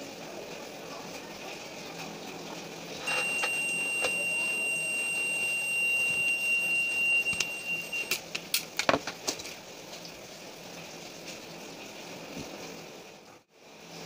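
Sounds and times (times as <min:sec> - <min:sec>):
multimeter continuity beep: 0:03.0 - 0:08.2.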